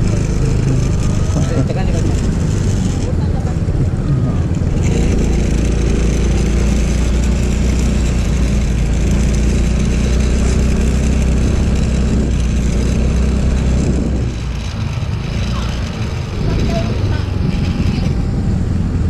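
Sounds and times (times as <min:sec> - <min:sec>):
scooter engine running: 0:00.0 - 0:19.0
wind and road noise: 0:00.0 - 0:19.0.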